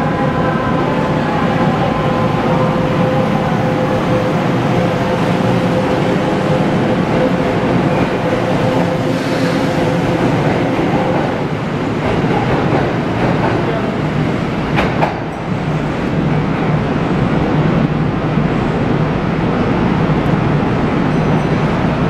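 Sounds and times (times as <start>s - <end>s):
electric train on rails: 0.0s - 22.0s
steady train hum: 0.0s - 22.0s.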